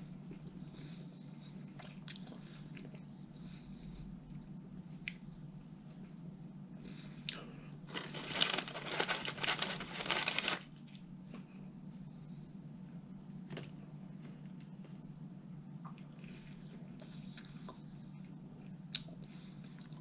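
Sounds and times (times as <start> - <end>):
paper crinkling and rustling: 7.9 - 10.8.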